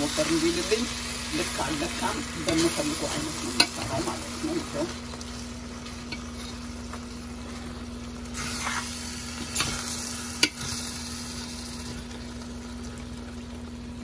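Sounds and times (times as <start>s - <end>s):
food sizzling in a pan: 0.0s - 14.0s
spoon scraping a pan: 8.4s - 10.8s.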